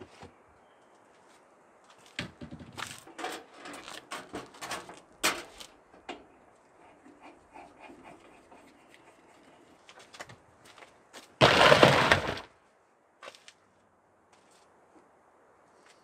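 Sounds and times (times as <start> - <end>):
plastic tote scraping rattle: 11.4 - 12.5.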